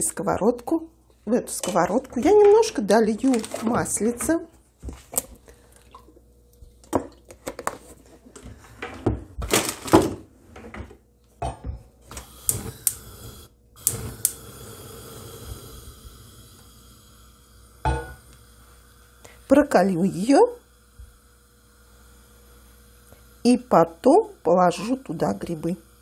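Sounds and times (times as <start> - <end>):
gas burner hissing: 12.0 - 26.0.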